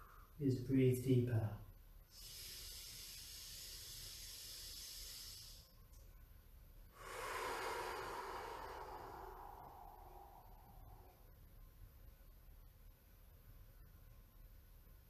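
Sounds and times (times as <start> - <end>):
man breathing deeply: 2.1 - 5.8, 6.9 - 11.3.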